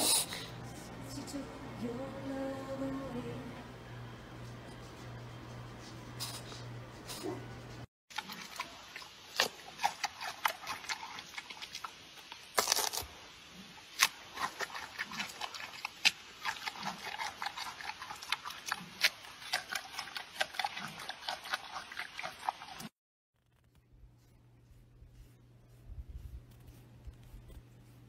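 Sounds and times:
slurping: 8.1s - 13.0s, 13.6s - 22.9s
panda chewing wetly: 8.2s - 12.4s, 14.0s - 22.9s.

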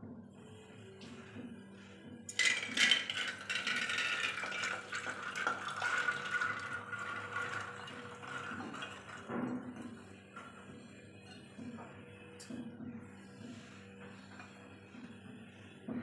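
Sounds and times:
peas splashing into metal pot: 2.3s - 8.6s.

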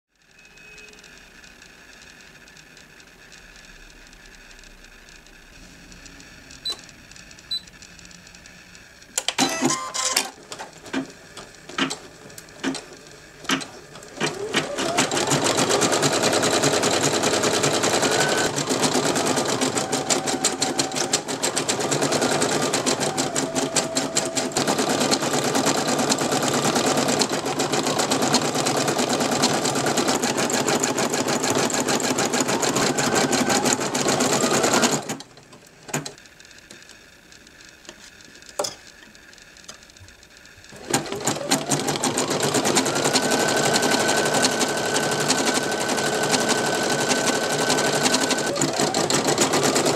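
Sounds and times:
clicks: 0.5s - 14.5s
embroidery machine stitching: 9.2s - 36.8s, 39.6s - 49.9s.

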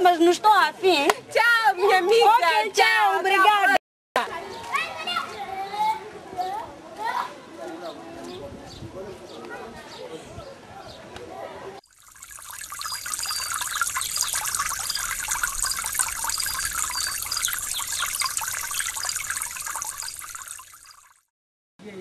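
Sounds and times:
water trickling: 11.8s - 21.3s
short high chirps: 12.0s - 21.2s.

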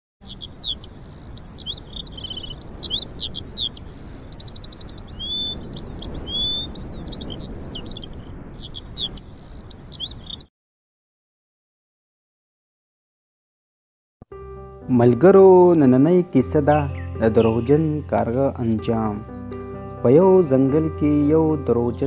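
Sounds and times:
songbirds chirping and trilling: 0.2s - 10.5s, 14.9s - 22.0s.

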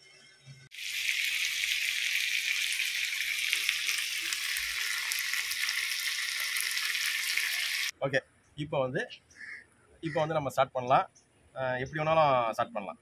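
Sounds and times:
chicken sizzling in hot oil: 0.7s - 7.9s.

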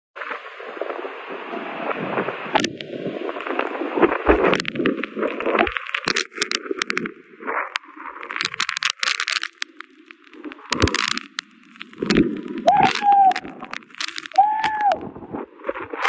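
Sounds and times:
driving rain: 0.3s - 16.0s
strong wind buffeting microphone: 0.9s - 5.7s, 12.0s - 16.0s
rapid crackling clicks: 2.6s - 16.0s.

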